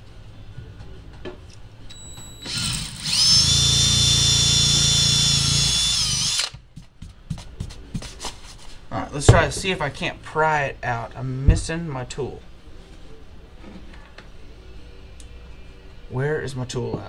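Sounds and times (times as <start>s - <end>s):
drill whining at full speed: 2.4s - 6.6s
cordless drill clicks: 2.5s - 6.6s.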